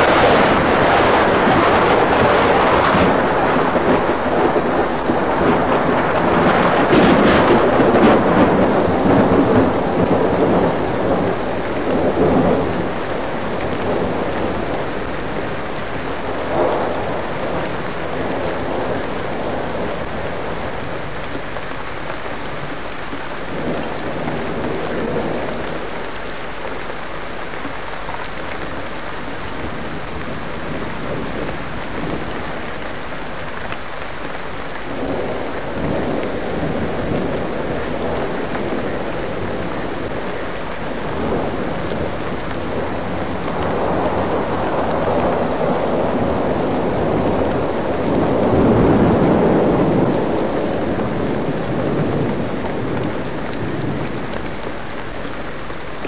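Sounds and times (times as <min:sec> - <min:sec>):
thunder rumbling: 0:00.0 - 0:26.1, 0:34.7 - 0:56.0
heavy rain falling: 0:00.0 - 0:56.0.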